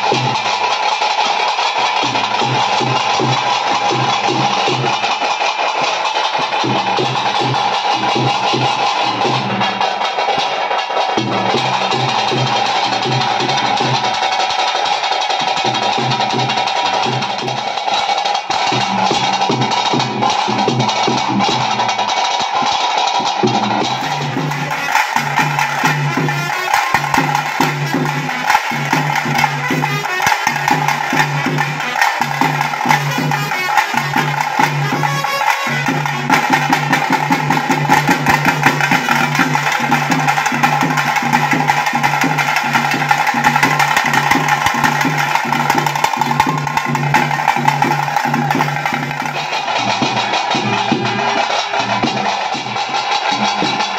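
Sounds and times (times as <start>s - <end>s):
drums beaten with sticks: 0.0s - 53.9s.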